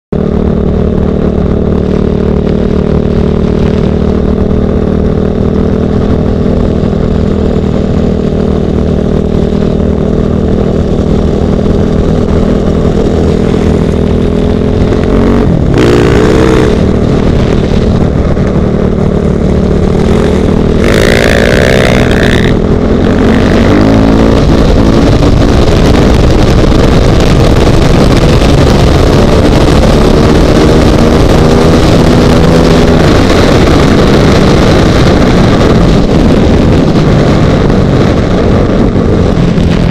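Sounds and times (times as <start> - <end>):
dirt bike engine: 0.1 - 39.9
rising and falling whine: 0.1 - 39.9.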